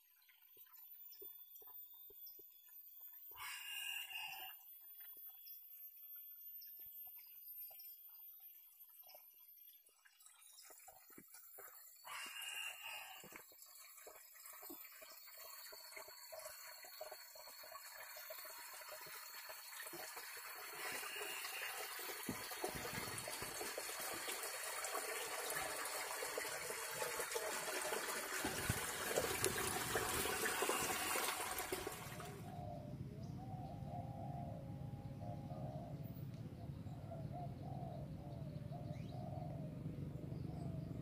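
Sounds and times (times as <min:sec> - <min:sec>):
water splashing into basin: 0:13.3 - 0:32.5.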